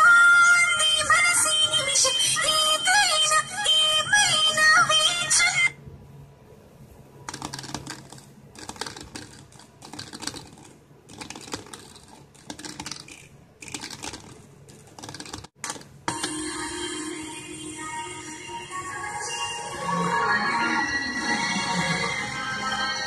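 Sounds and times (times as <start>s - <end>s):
crackling and scratching clicks: 7.3s - 16.3s
music playing: 16.1s - 23.0s.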